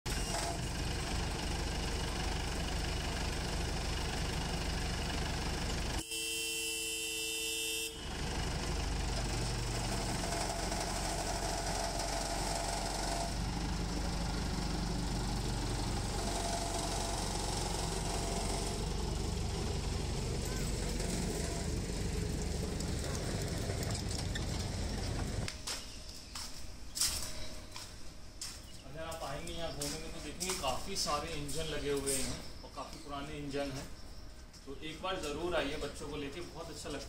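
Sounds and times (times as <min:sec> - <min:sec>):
toy train horn: 0:06.0 - 0:08.1
toy train engine humming: 0:08.6 - 0:25.5.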